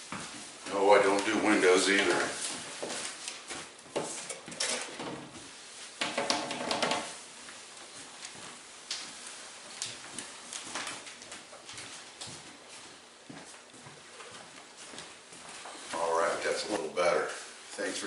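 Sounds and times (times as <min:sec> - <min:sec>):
household items knocking and clattering: 0:06.0 - 0:07.2.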